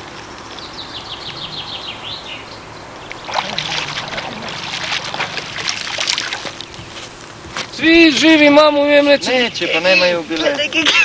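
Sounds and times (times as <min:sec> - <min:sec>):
fish splashing in water: 0:03.1 - 0:06.9.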